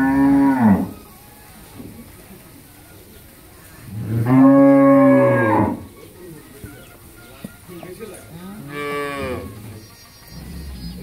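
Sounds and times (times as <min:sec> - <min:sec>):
cattle mooing: 0:00.0 - 0:01.0, 0:03.9 - 0:05.9, 0:08.4 - 0:09.8.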